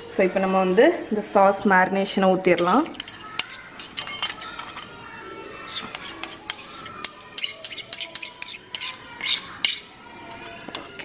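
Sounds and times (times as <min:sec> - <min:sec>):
spoon clinking against bowl: 0:02.6 - 0:05.0, 0:05.7 - 0:11.0.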